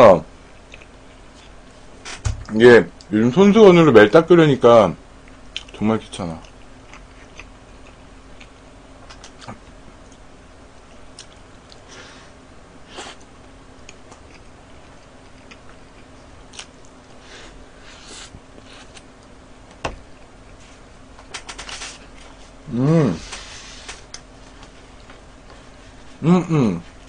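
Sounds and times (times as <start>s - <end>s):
faint steady hum: 0.0s - 27.0s
person chewing: 0.6s - 1.6s, 6.4s - 10.2s, 10.8s - 11.9s, 12.9s - 17.3s.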